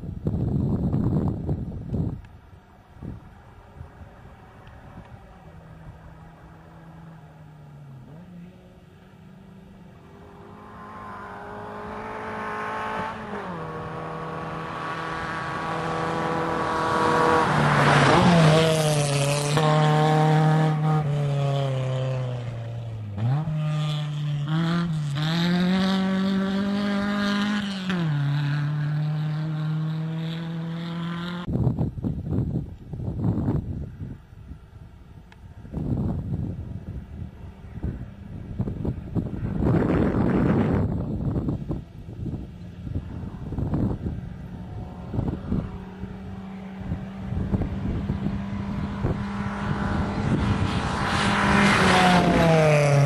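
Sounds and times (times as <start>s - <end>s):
wind noise on microphone: 0.0s - 6.3s, 30.1s - 53.0s
rally car engine revving: 6.2s - 31.5s, 43.0s - 53.0s.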